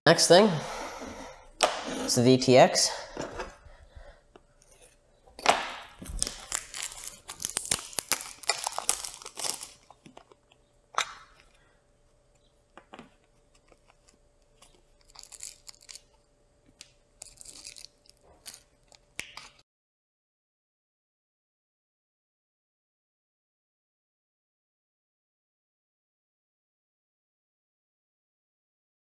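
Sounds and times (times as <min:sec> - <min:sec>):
plastic packaging crinkling: 0:05.8 - 0:11.6, 0:13.5 - 0:19.6.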